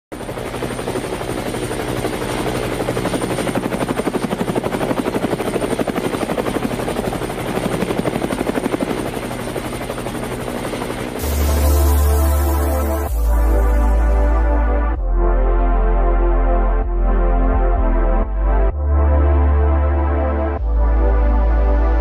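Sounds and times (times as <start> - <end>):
helicopter rotor chopping: 0.2 - 15.0
low hum: 11.1 - 22.0.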